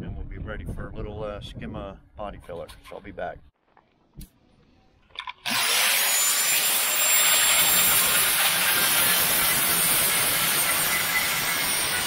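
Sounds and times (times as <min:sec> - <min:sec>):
angle grinder grinding metal: 0:05.4 - 0:12.0.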